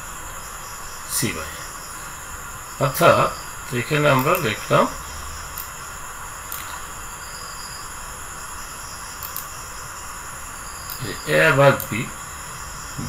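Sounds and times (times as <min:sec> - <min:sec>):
background hiss: 0:00.0 - 0:13.0
faint high whine: 0:00.0 - 0:13.0
faint clicks: 0:04.2 - 0:04.6, 0:05.5 - 0:05.8, 0:06.5 - 0:06.8, 0:09.2 - 0:09.5, 0:10.8 - 0:11.1.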